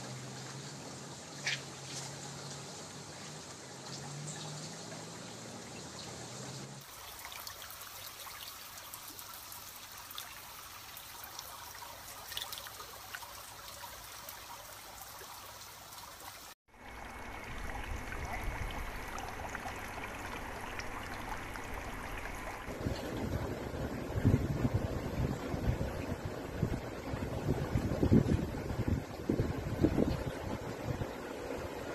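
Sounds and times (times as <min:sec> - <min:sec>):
shallow water trickling and lapping: 0:00.0 - 0:31.9
water rushing with low rumble: 0:00.0 - 0:31.9
small splashy ticks: 0:11.2 - 0:14.1.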